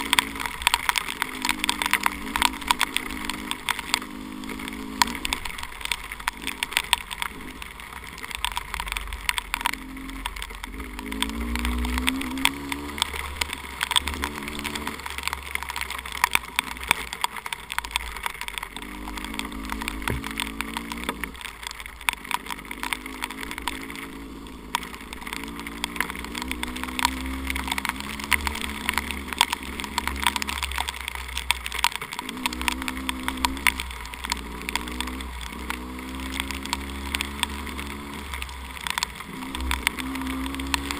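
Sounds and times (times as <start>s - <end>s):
dirt bike engine revving: 0.0s - 5.4s, 9.6s - 15.3s, 18.8s - 21.4s, 22.2s - 30.8s, 32.1s - 40.9s
sharp ticks: 0.0s - 40.9s
wind rumble on microphone: 19.4s - 21.4s.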